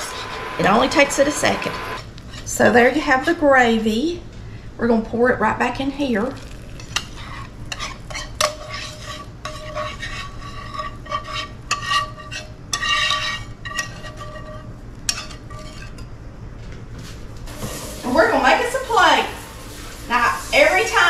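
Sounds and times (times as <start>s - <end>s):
wire whisk scraping metal skillet: 2.3s - 2.5s, 6.4s - 16.1s.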